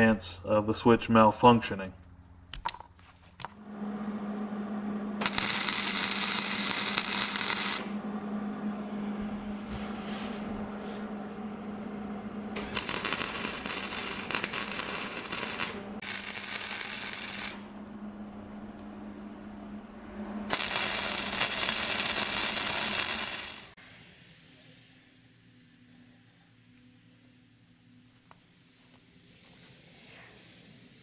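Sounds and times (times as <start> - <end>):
steady low hum: 0.0 - 23.8
welding arc crackling: 4.8 - 8.0, 12.5 - 18.0, 20.4 - 23.8.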